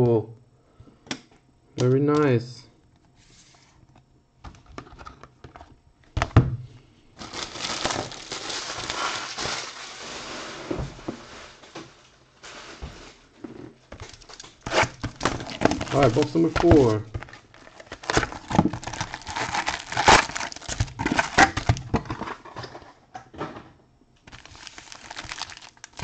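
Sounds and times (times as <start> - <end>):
plastic crinkling and rustling: 7.2 - 22.8, 24.3 - 26.0.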